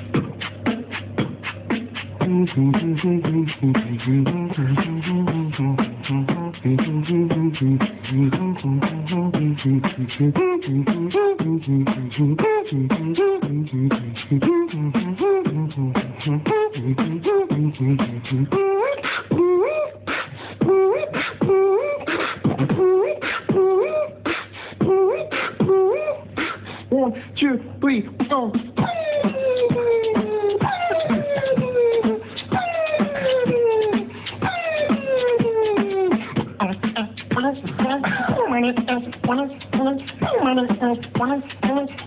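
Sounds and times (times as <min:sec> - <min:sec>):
beatboxing: 0:00.0 - 0:27.1, 0:28.1 - 0:42.0
low bass line: 0:02.2 - 0:18.6.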